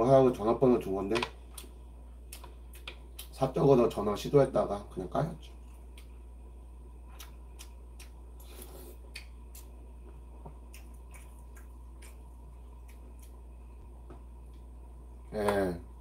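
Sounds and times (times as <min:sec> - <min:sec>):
steady low hum: 0:00.0 - 0:16.0
man chewing wet smacks: 0:01.5 - 0:03.4, 0:05.4 - 0:06.3, 0:07.0 - 0:14.7.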